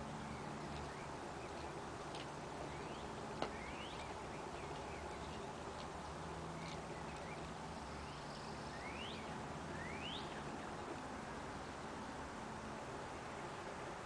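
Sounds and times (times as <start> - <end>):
steady outdoor hiss: 0.0 - 14.0
birds whistling upward notes: 2.6 - 5.6, 6.5 - 10.8.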